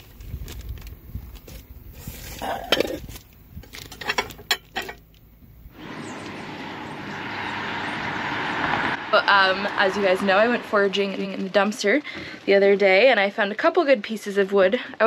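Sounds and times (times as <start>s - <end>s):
outdoor background noise: 0.0s - 15.0s
stoneware dishes clinking: 3.9s - 5.0s.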